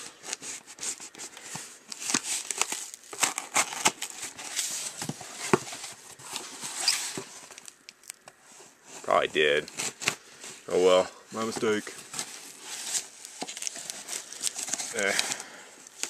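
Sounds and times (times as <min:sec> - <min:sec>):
packing tape ripping: 0:00.2 - 0:04.8, 0:06.3 - 0:08.2, 0:12.1 - 0:16.0.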